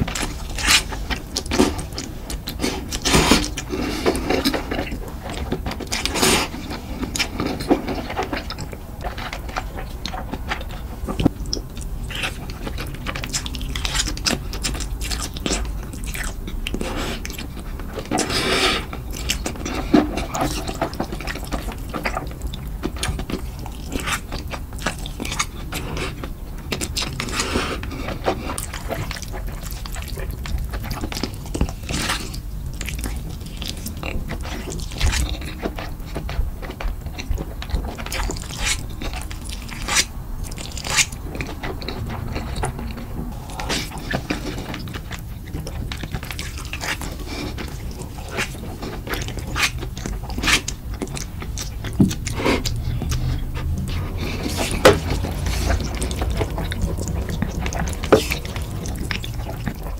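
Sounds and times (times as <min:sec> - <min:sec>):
slurping noodles: 0:00.0 - 0:36.2, 0:37.1 - 0:59.9
wet chewing and smacking: 0:00.0 - 0:59.9.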